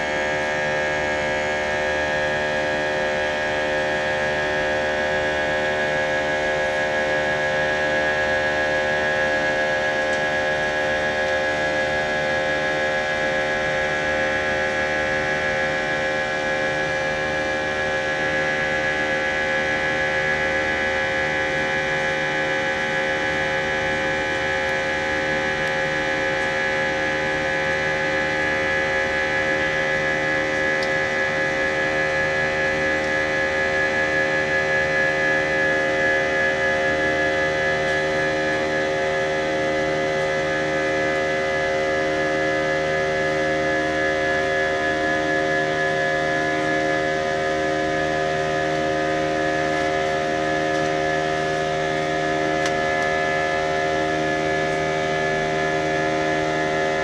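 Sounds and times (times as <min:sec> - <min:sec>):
jet engine cabin drone: 0:00.0 - 0:57.0.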